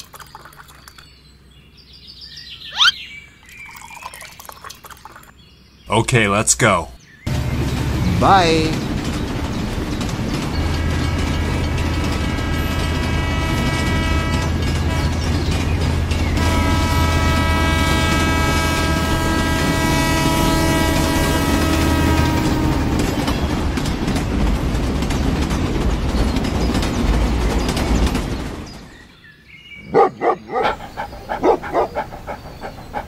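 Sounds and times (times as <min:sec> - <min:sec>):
train horn blasts: 0:10.6 - 0:23.4.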